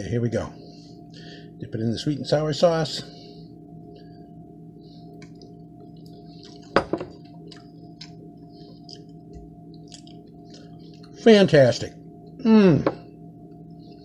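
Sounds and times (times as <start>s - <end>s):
low hum of held tones: 0.0s - 14.0s
person chewing food: 5.1s - 11.2s.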